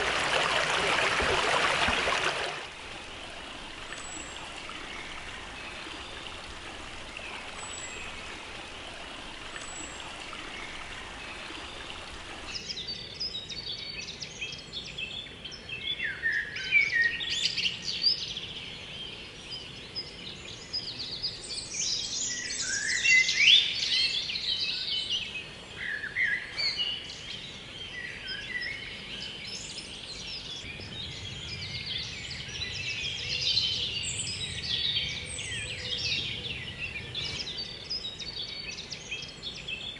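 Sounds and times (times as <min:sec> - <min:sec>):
stream and waterfall rushing: 0:00.0 - 0:12.8
songbirds chorus: 0:00.0 - 0:39.9.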